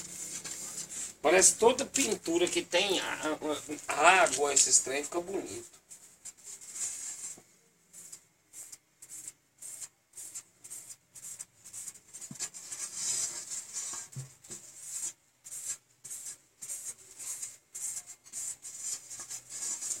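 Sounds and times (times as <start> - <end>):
hand smearing paint on panel: 6.8 - 20.0.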